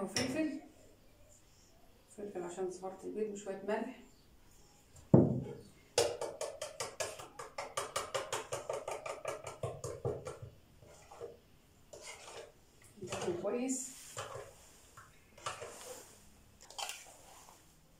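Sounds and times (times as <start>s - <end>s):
fork beating eggs: 6.2s - 13.4s.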